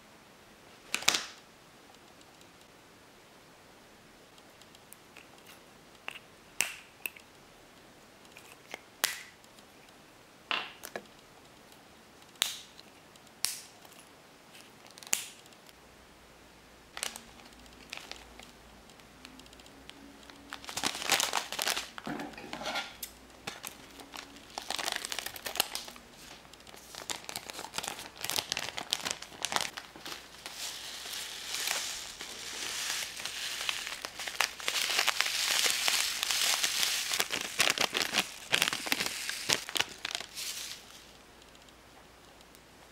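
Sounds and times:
foil packet crinkling: 16.9s - 18.5s, 20.2s - 22.1s, 23.4s - 41.2s
plastic bag rustling: 17.0s - 18.5s, 20.3s - 22.5s, 23.4s - 41.2s.

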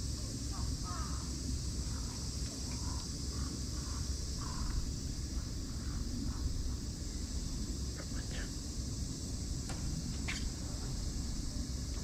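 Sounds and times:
insects chirring: 0.0s - 12.0s
faint bird calls: 0.5s - 6.9s.

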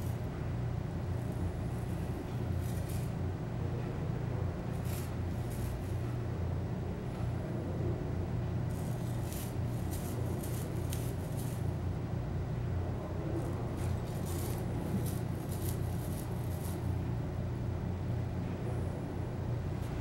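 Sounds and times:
gravel vacuum low hum: 0.0s - 20.0s
crackling hiss of gravel: 13.8s - 16.9s.

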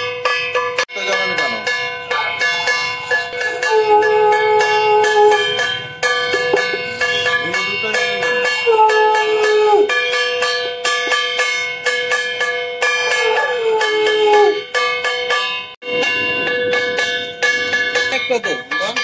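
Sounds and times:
rhythmic bell ringing: 0.0s - 19.0s
conch shell blown: 2.4s - 15.2s.

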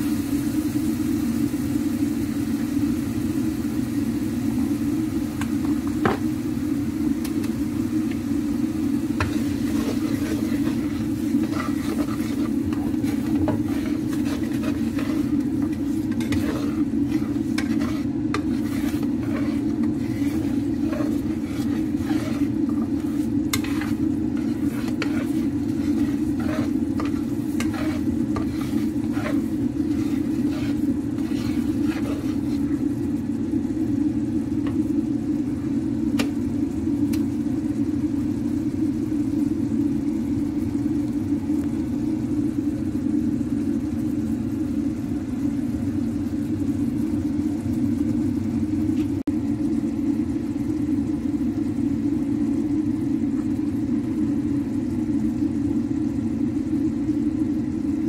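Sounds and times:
steady low hum: 0.0s - 58.0s
spatula scraping sauce in a pan: 9.1s - 32.9s.

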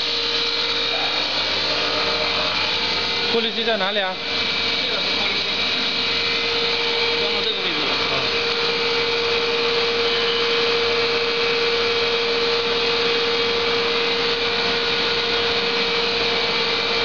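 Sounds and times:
machine whirring hiss: 0.0s - 17.0s.

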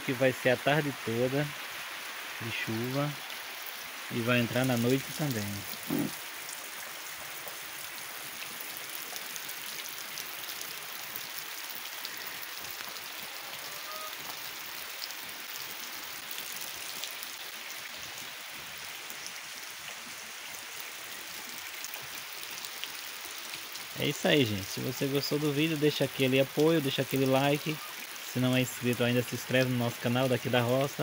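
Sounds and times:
steady rain on trees and grass: 0.0s - 31.0s
rain drop ticks: 7.2s - 7.6s.

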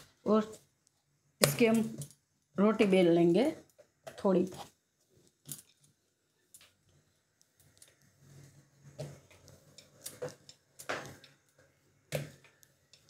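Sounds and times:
rolling pin rolling dough: 7.9s - 13.0s.

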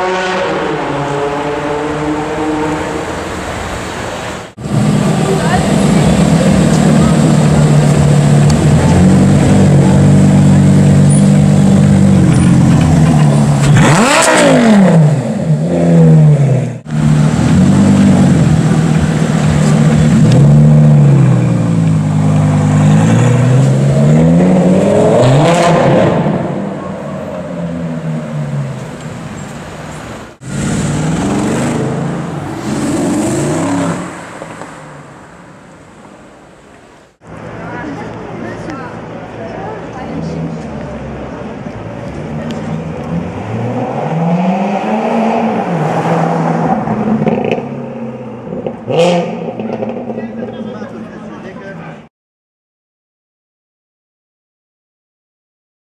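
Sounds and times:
sports car engine revving: 4.6s - 28.8s, 30.4s - 34.2s.

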